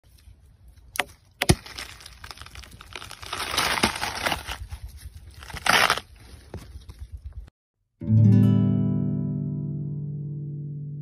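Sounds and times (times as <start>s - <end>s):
watermelon rind crunching: 0.1s - 6.6s
watermelon rind tearing: 0.1s - 6.6s.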